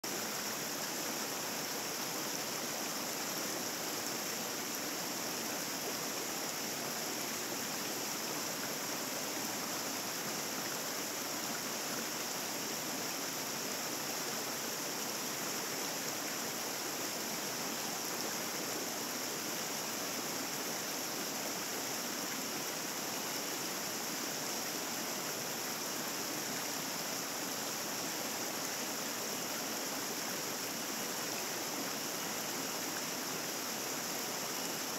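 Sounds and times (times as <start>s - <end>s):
stream rushing over rocks: 0.0s - 34.9s.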